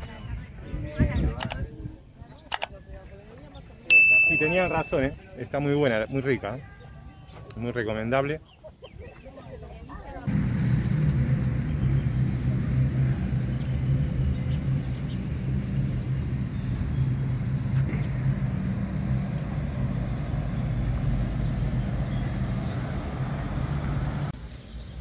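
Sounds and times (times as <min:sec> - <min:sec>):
vehicle engine running: 0:10.2 - 0:24.4.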